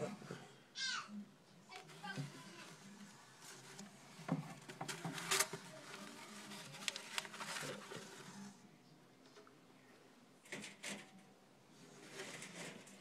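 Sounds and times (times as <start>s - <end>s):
rustling and scratching on newspaper: 1.7s - 8.6s, 11.9s - 13.0s.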